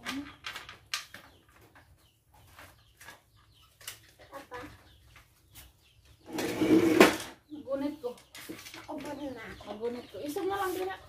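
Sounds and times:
chickens clucking: 0:01.1 - 0:11.0.

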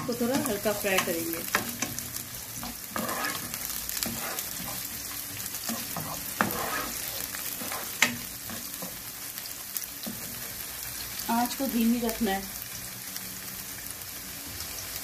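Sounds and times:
spoon stirring and scraping pan: 0:00.0 - 0:10.6
onion sizzling in hot oil: 0:00.0 - 0:15.0.

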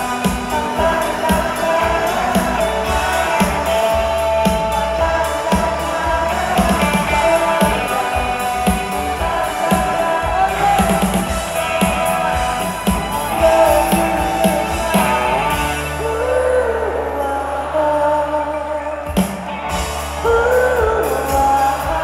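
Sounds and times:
woman singing: 0:00.0 - 0:19.0, 0:20.2 - 0:22.0
rock band playing: 0:00.0 - 0:22.0.

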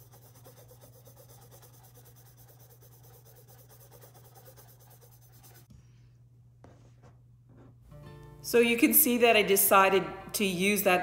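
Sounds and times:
paintbrush scratching on canvas: 0:00.0 - 0:06.0
steady low hum: 0:00.0 - 0:08.4.

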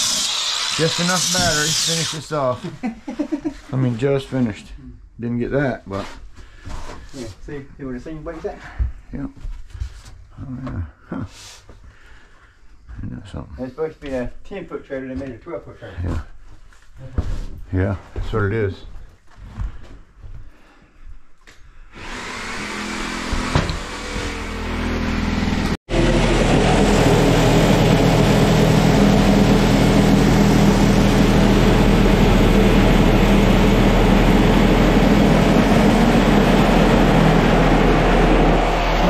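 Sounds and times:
reciprocating saw cutting: 0:00.0 - 0:02.5, 0:22.0 - 0:39.0.

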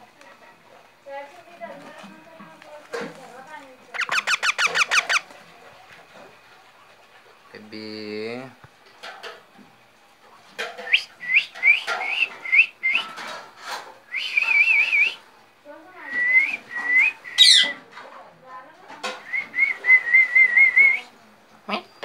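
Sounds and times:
parakeet warbling trills: 0:03.9 - 0:05.3, 0:17.3 - 0:17.8
parakeets chirping: 0:03.9 - 0:05.4, 0:16.4 - 0:17.8.

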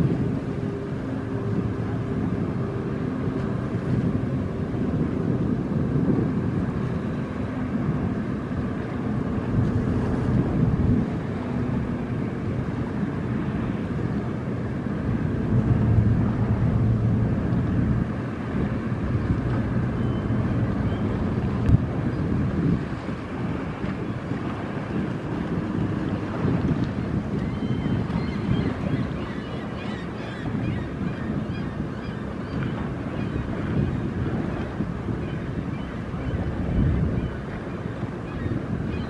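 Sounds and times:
wind noise on microphone: 0:00.0 - 0:39.0
diesel engines droning: 0:06.8 - 0:22.1.

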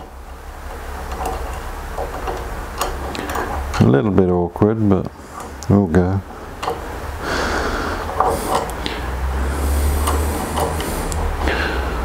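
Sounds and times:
small metal clicks and scrapes: 0:00.0 - 0:04.0, 0:08.0 - 0:08.9, 0:09.8 - 0:11.3
steady low hum: 0:00.0 - 0:12.0.

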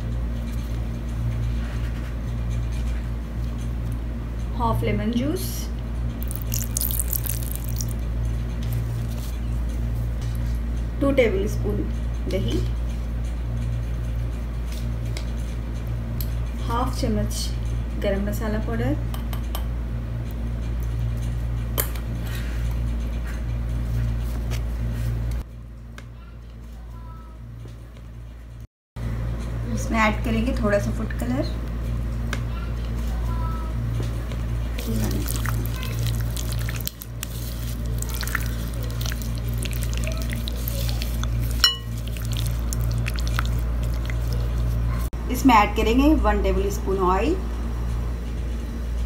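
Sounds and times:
low steady hum: 0:00.0 - 0:25.9, 0:26.7 - 0:49.0
hands squishing chicken in marinade: 0:06.2 - 0:08.0, 0:34.8 - 0:45.1
steady low hum: 0:26.8 - 0:49.0.

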